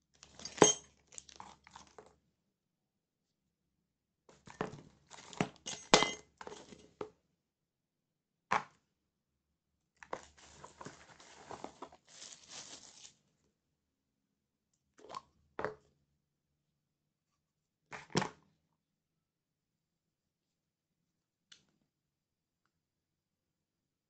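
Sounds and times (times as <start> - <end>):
plastic packaging crinkling: 1.1 - 1.9, 10.2 - 13.3.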